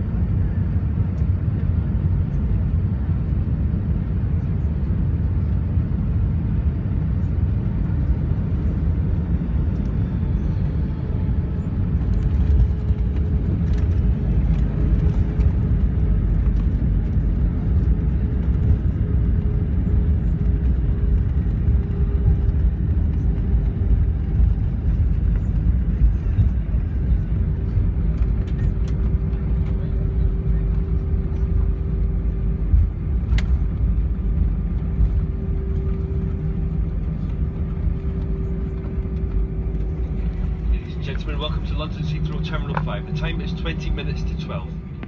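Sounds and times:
airliner cabin low rumble: 0.0 - 45.0.

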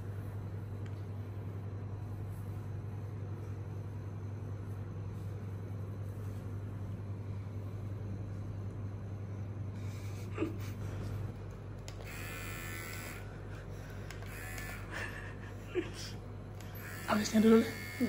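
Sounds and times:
clipper blades rasping through hair: 11.5 - 13.3, 14.0 - 14.9
hair clippers buzzing: 11.8 - 15.4, 16.6 - 18.0.

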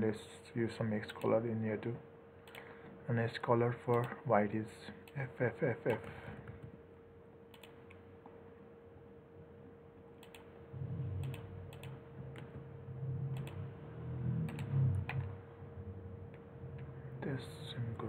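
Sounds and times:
faint steady hum: 0.0 - 18.0
mouse clicks: 7.5 - 8.0, 10.2 - 10.5, 11.2 - 12.5, 13.3 - 13.6, 14.5 - 15.3
low rumble: 10.7 - 18.0.

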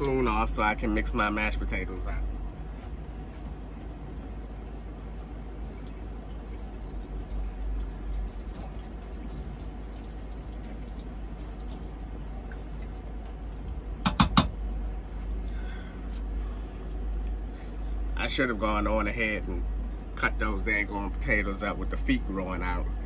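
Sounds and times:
water trickling and dripping: 4.1 - 13.8
sharp knocks: 14.0 - 14.6.

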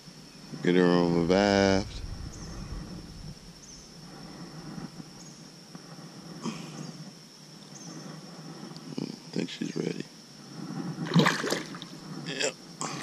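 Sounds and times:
thin steady high tone: 0.0 - 11.0
water sloshing: 11.0 - 12.0.

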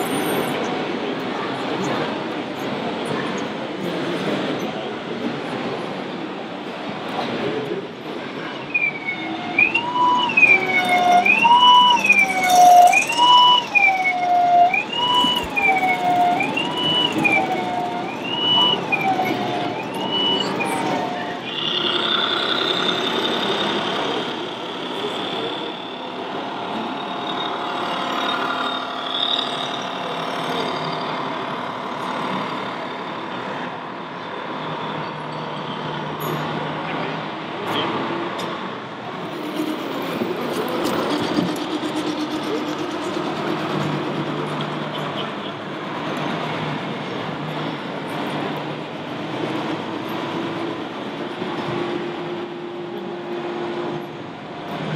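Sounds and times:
two-tone siren: 8.5 - 32.6, 39.2 - 45.8.

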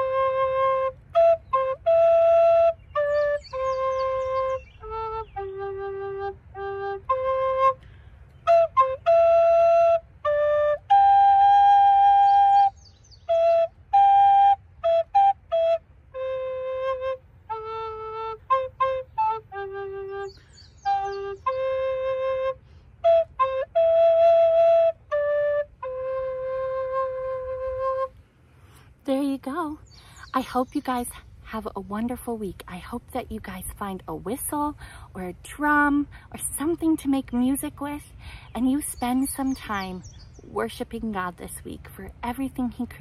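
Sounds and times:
recorder playing slow melody: 0.0 - 28.3.

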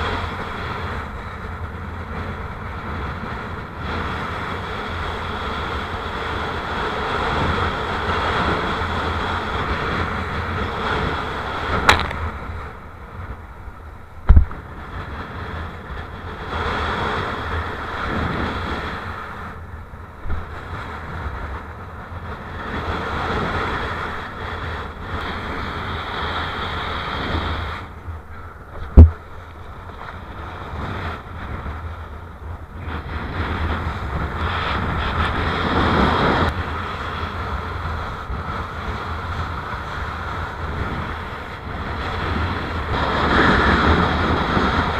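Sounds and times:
board planing across choppy water: 0.0 - 44.9
strong wind buffeting microphone: 0.0 - 44.9
sharp knocks: 11.9 - 12.2.

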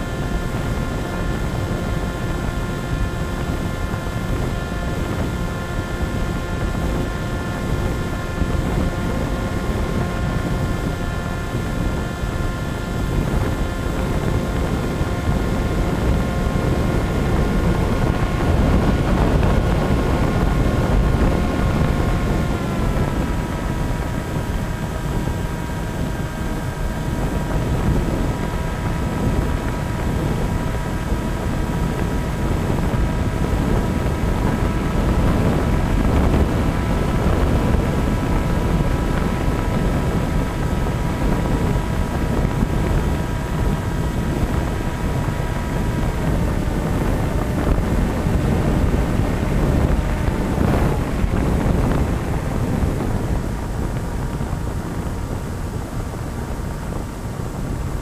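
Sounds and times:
model airplane motor whine: 0.0 - 58.0
wind rushing over microphone: 0.0 - 58.0.

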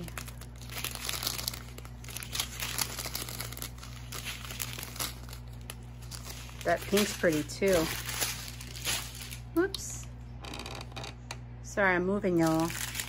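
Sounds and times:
plastic bags crinkling: 0.0 - 9.7, 12.3 - 13.0.

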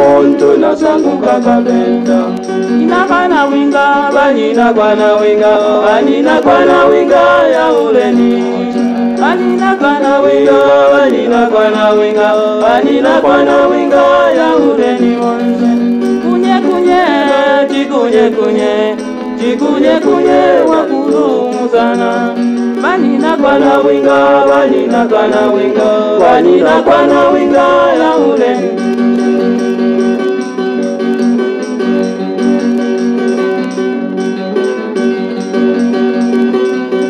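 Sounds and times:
voices singing a song: 0.0 - 29.3.

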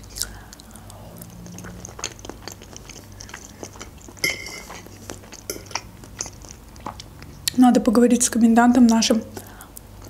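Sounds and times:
wet chewing mouth clicks: 0.0 - 7.6
metal fork clinking in bowl: 4.2 - 4.8.

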